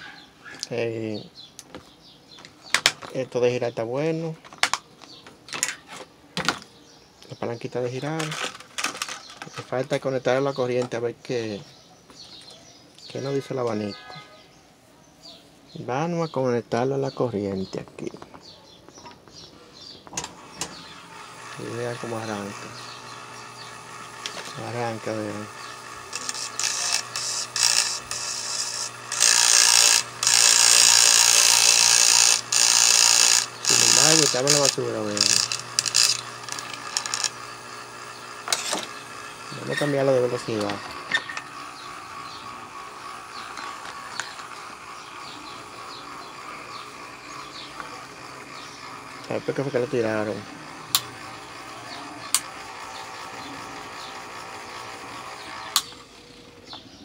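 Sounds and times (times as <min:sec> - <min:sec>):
electric fan motor humming: 0:06.5 - 0:11.7, 0:19.3 - 0:57.0
screwdriver scraping motor shaft: 0:08.0 - 0:10.0, 0:20.1 - 0:56.8
sharp clicks: 0:25.6 - 0:39.0, 0:50.9 - 0:51.6, 0:52.3 - 0:53.0, 0:55.3 - 0:56.1.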